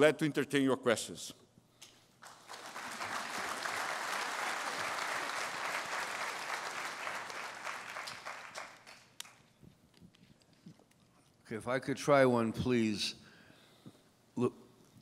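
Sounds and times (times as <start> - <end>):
audience applauding: 2.2 - 9.4.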